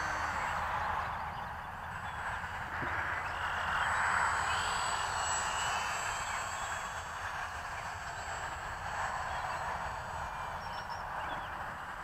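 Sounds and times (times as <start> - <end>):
model plane propeller buzzing: 0.0 - 12.0.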